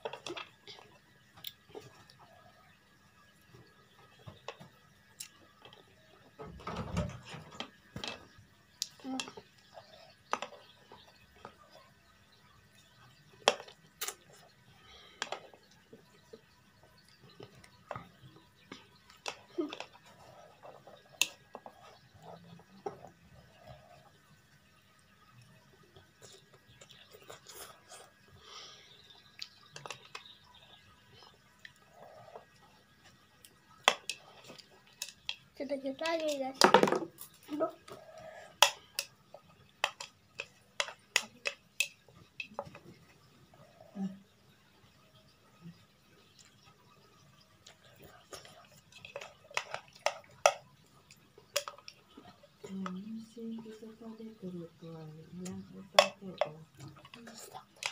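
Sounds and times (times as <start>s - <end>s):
quiet chewing: 0.0s - 6.4s, 7.6s - 35.5s, 37.2s - 54.0s, 55.2s - 57.9s.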